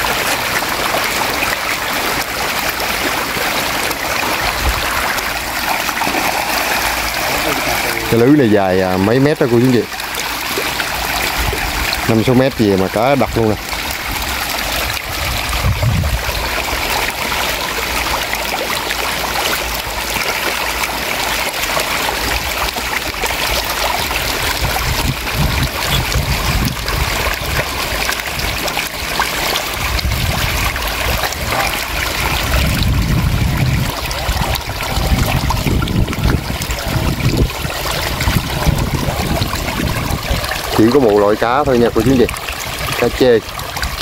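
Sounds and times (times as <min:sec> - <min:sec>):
fish thrashing in shallow water: 0:00.0 - 0:44.0.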